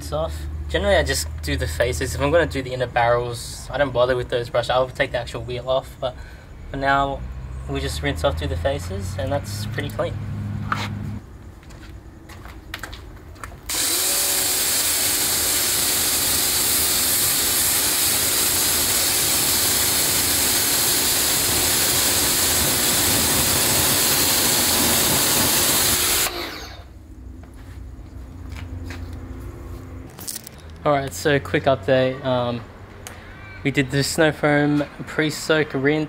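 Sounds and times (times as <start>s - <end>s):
pressure washer motor: 13.7s - 27.0s
water spray hissing on wheel: 14.7s - 26.2s.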